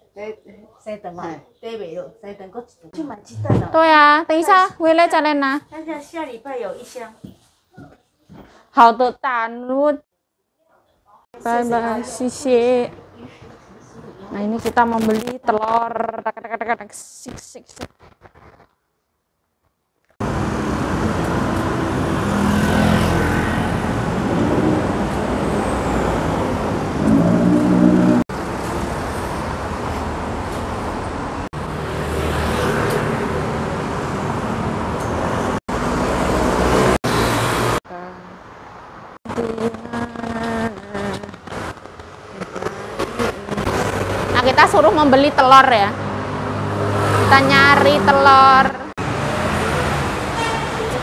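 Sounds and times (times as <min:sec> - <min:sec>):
cars and scooters passing: 0:20.2 - 0:51.0.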